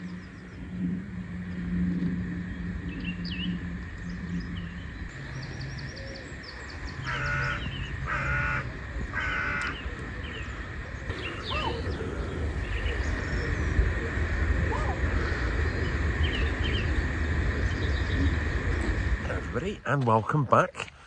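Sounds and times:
low steady hum: 0.0s - 21.0s
small birds chirping: 2.4s - 19.6s
large bird calling: 2.9s - 19.1s.

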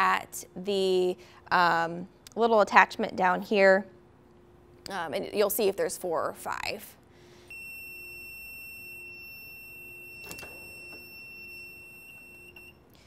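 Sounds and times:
press opening clunk: 10.2s - 11.0s.

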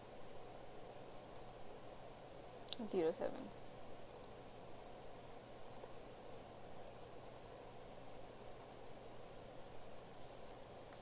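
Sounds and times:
computer mouse clicking: 1.1s - 1.6s, 3.4s - 4.4s, 5.1s - 5.9s, 7.3s - 7.6s, 8.6s - 8.8s.

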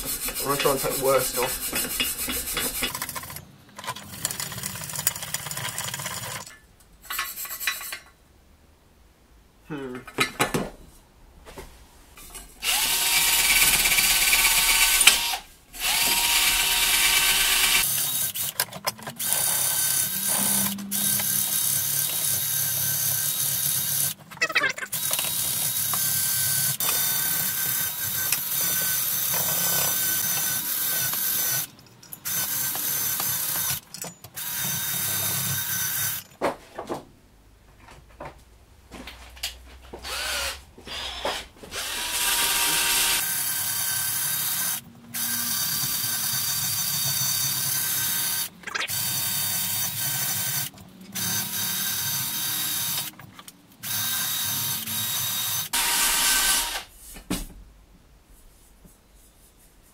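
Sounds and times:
handheld power tool running: 0.0s - 3.4s, 12.6s - 18.6s, 24.9s - 33.8s, 40.0s - 53.1s, 53.8s - 56.9s.

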